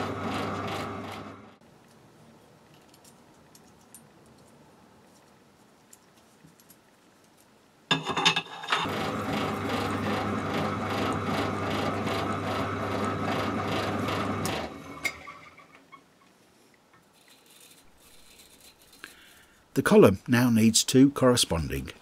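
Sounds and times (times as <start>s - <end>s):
pillar drill humming: 8.9s - 15.2s.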